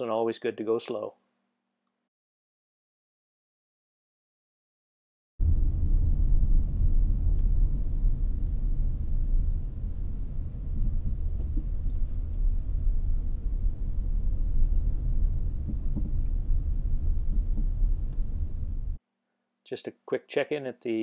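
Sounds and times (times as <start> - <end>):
vehicle engine and tyre rumble: 5.4 - 19.0.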